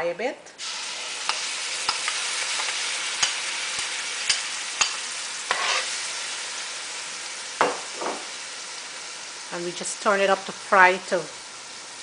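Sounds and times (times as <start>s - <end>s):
paste sizzling in hot oil: 0.6s - 12.0s
spoon scraping pot: 4.3s - 6.0s.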